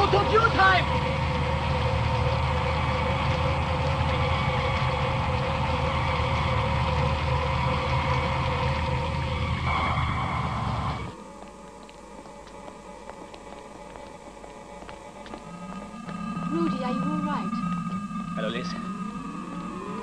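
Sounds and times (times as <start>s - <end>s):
deep electronic hum: 0.0s - 20.0s
held electronic tone: 15.0s - 20.0s.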